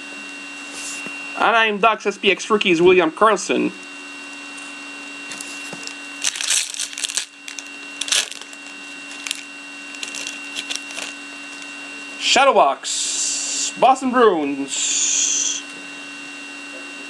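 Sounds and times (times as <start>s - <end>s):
steady low hum: 0.0s - 16.2s
foil wrapper crinkling: 5.3s - 11.7s.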